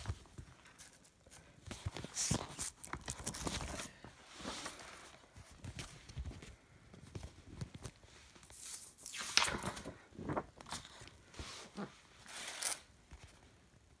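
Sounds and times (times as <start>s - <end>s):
paper sleeves rustling: 0.0s - 13.8s.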